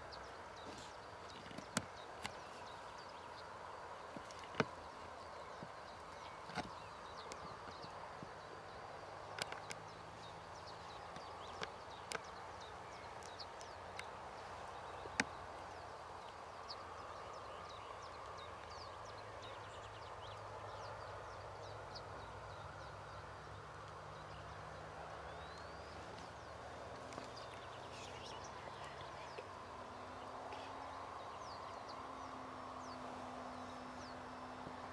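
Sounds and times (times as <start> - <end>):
small birds chirping: 0.0 - 34.9
sharp clicks: 9.3 - 9.9.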